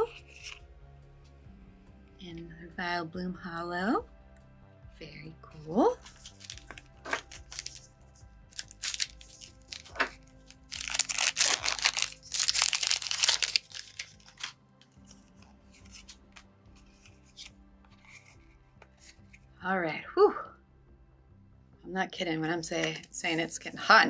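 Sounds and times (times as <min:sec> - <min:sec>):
cards rustling and clicking: 0:00.1 - 0:00.6, 0:06.0 - 0:19.4
packaging crinkling and tearing: 0:06.0 - 0:07.9, 0:08.5 - 0:16.4.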